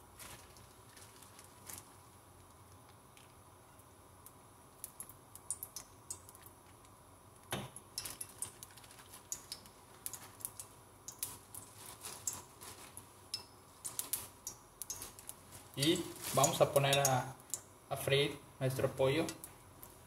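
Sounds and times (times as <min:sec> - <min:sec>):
fat crackling in a frying pan: 0:00.0 - 0:17.8, 0:18.7 - 0:20.0.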